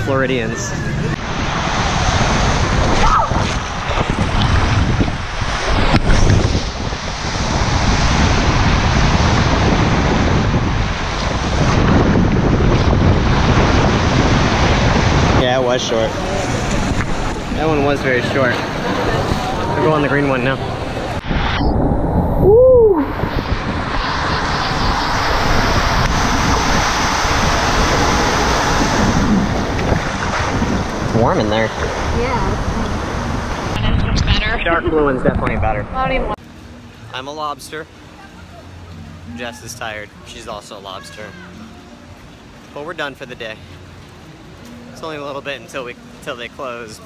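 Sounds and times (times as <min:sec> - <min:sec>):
wind buffeting microphone: 0:00.0 - 0:36.4
water rushing and splashing: 0:00.0 - 0:47.0.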